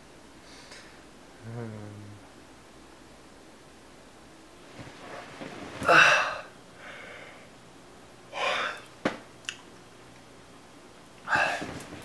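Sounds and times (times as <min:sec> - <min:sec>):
man breathing sharply: 0:06.8 - 0:07.5.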